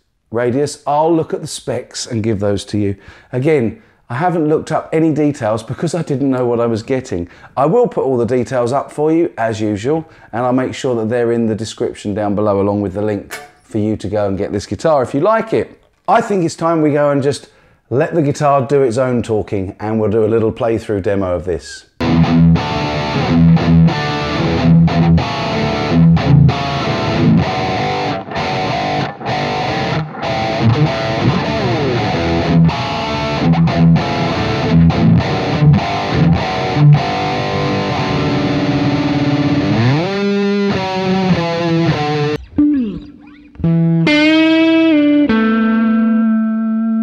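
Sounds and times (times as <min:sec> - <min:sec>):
distorted electric guitar riffing: 0:22.0 - 0:47.0.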